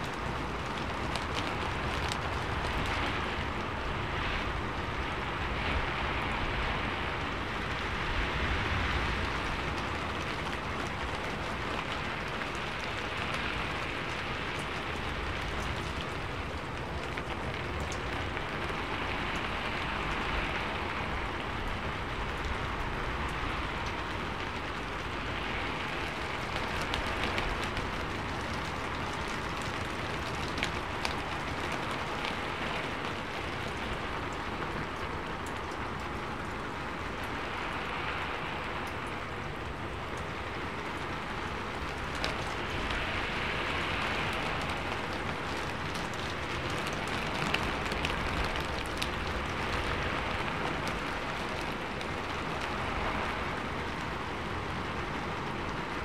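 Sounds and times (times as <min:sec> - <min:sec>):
rain on a rooftop: 0:00.0 - 0:56.0
raindrop ticks: 0:00.0 - 0:56.0.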